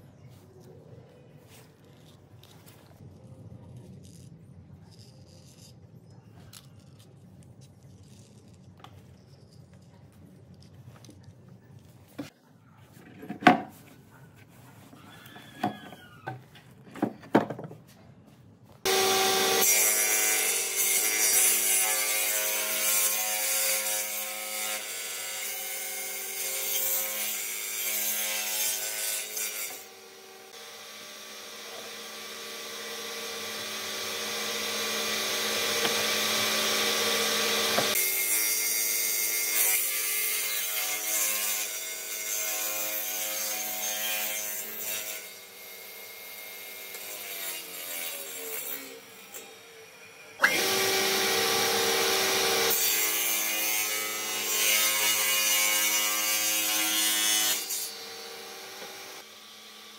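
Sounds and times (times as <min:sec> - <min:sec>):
power tool working wood: 0:18.9 - 0:22.4, 0:27.8 - 0:40.5, 0:50.4 - 0:59.9.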